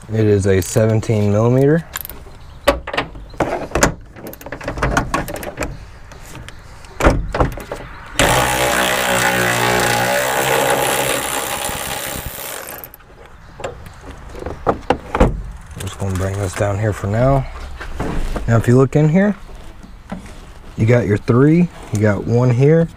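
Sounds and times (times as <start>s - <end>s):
electric ratchet running: 8.2s - 13.0s.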